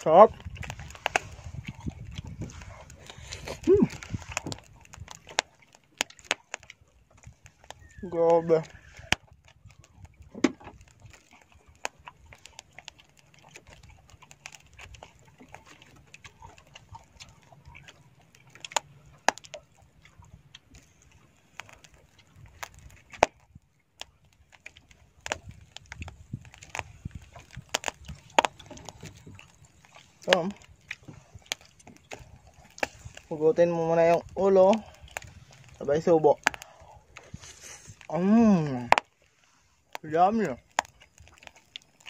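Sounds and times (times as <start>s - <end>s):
person chewing: 0.6s - 6.7s, 24.6s - 33.3s, 36.4s - 40.0s.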